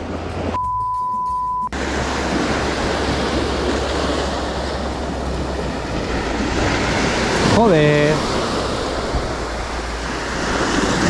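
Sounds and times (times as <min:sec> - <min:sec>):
sea and wind noise: 0:00.0 - 0:11.0
high electronic beep: 0:00.6 - 0:01.8.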